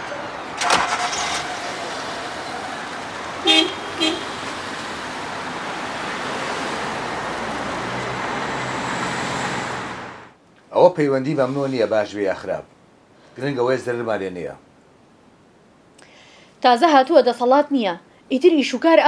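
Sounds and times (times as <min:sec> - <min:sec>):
car moving off on road: 0:00.0 - 0:10.4
car horn toots: 0:03.4 - 0:04.6.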